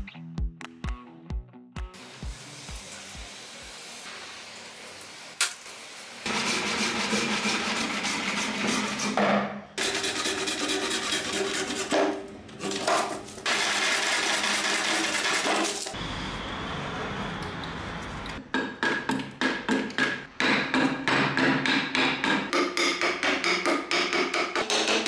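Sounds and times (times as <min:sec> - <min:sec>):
hand saw cutting wood: 0:06.3 - 0:09.2, 0:09.8 - 0:16.0.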